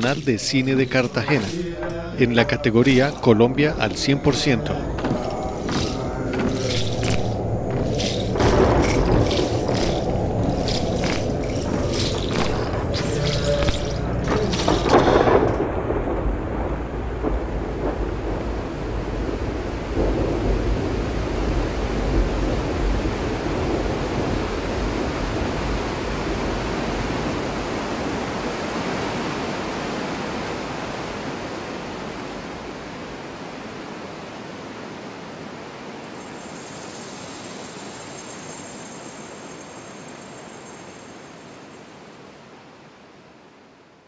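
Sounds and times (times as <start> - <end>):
faint high steady tones: 0.0 - 15.5
waterfall roaring: 0.0 - 36.1.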